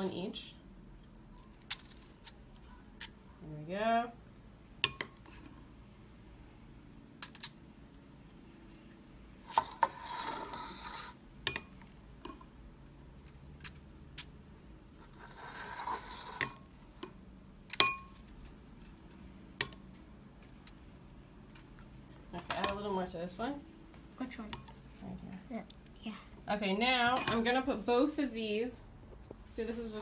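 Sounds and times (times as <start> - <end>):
spoon scraping glass bowl: 9.5 - 11.2, 15.0 - 16.7
spoon clinking on glass bowl: 17.8 - 18.1, 27.2 - 27.4.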